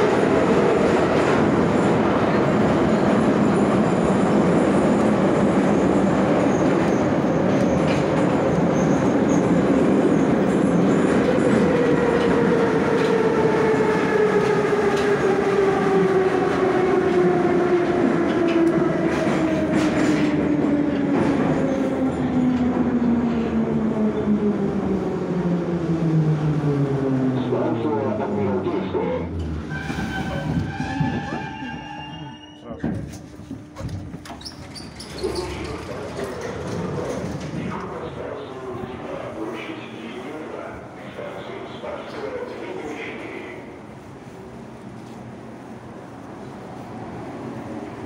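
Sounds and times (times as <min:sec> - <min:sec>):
metro train running in tunnel: 0:00.0 - 0:48.0
rail clatter: 0:32.8 - 0:38.0.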